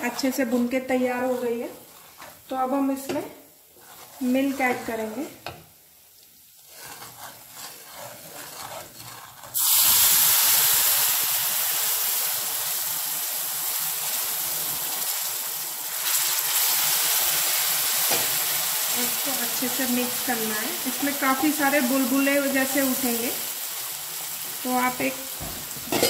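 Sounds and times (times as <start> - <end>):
milk hissing in hot fat: 6.2 - 25.9.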